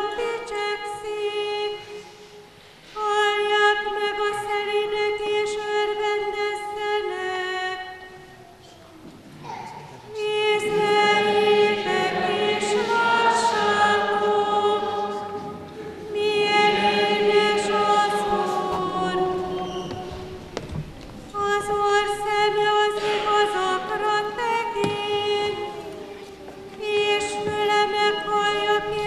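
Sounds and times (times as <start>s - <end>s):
choir singing a chant: 10.1s - 20.8s, 21.4s - 29.0s.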